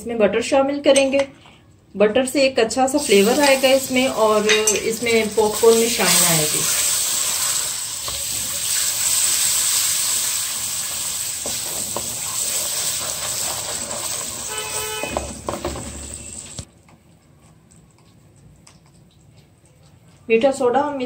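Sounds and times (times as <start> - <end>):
butter sizzling in a pan: 3.0 - 16.7
wooden spatula stirring: 11.4 - 16.7.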